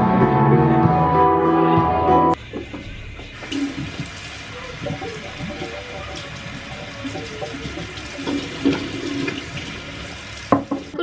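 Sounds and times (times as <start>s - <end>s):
running water: 3.3s - 11.0s.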